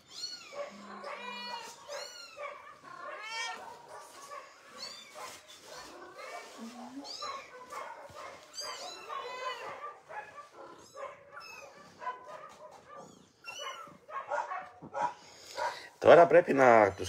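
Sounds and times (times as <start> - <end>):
high-pitched animal cries and yelps: 0.0 - 3.6, 8.4 - 9.8, 10.4 - 12.0, 13.0 - 14.1.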